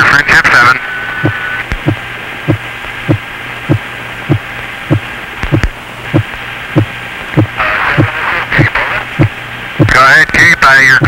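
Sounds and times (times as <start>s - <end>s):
radio static burst: 0.0s - 3.2s, 5.0s - 11.0s
radio hiss: 0.0s - 11.0s
heartbeat thumps: 1.2s - 10.0s.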